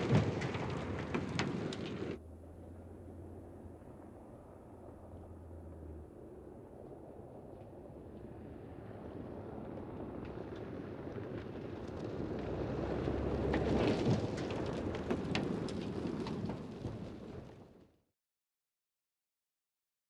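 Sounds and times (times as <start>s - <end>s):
gravel spraying from tyres: 0.0s - 2.2s, 9.4s - 17.8s
car driving past: 11.4s - 16.2s.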